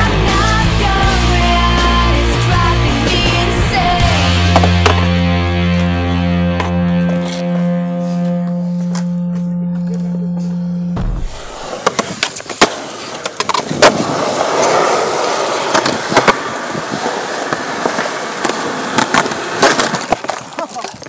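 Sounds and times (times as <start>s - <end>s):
skateboard wheels rolling on asphalt: 0.0s - 7.6s, 11.2s - 21.0s
guitar chord: 3.8s - 11.4s
skateboard clacking on pavement: 4.5s - 5.1s, 11.8s - 21.0s.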